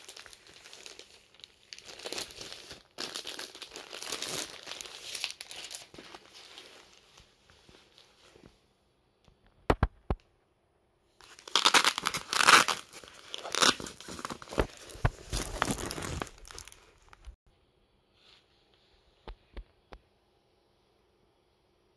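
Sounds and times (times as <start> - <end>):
plastic crinkling and tearing: 0.0 - 7.2, 11.2 - 17.4.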